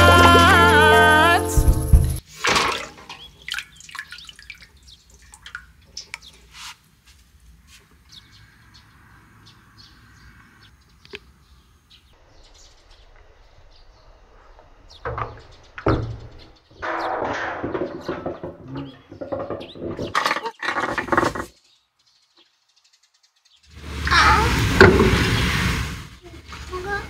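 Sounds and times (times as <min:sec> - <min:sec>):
water sloshing in a metal bucket: 0:02.2 - 0:06.6
water drips and small splashes: 0:02.2 - 0:07.4.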